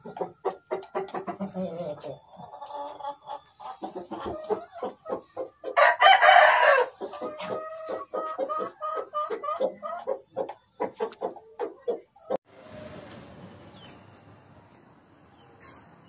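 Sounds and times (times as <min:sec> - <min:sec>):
chickens clucking: 0:00.0 - 0:14.8
rooster crowing: 0:05.8 - 0:07.0.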